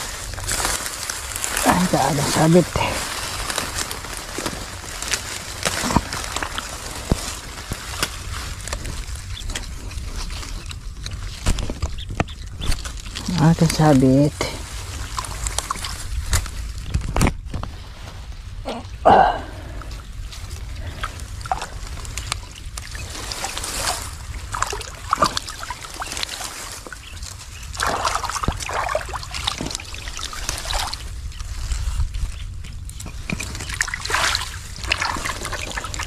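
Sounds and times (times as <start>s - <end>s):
water splashing and sloshing: 0.0s - 18.5s, 19.9s - 36.0s
steady low rumble: 0.0s - 36.0s.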